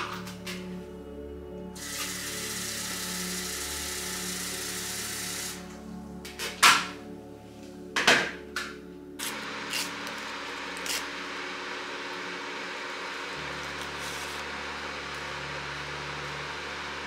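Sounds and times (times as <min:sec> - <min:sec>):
soft background music: 0:00.0 - 0:17.0.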